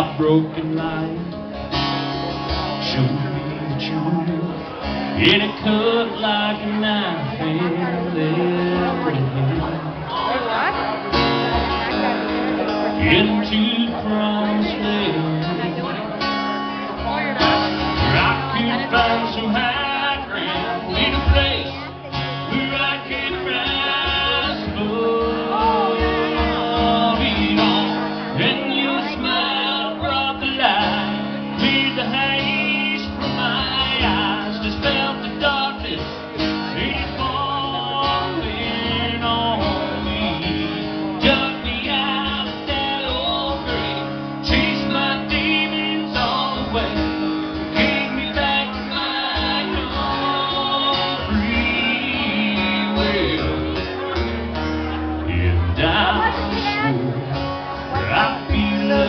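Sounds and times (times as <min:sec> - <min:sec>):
acoustic guitars strumming: 0:00.0 - 0:59.0.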